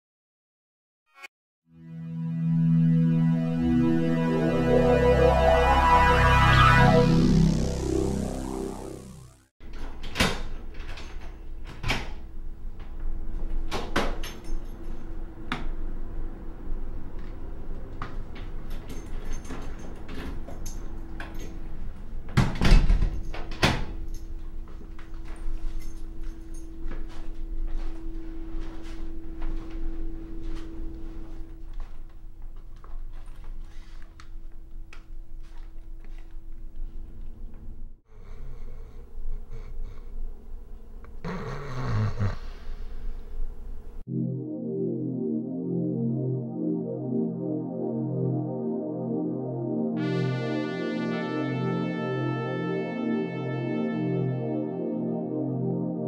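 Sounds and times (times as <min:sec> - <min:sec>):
held drone note: 0:01.7 - 0:09.5, 0:44.1 - 0:56.0
low hum: 0:01.9 - 0:09.5.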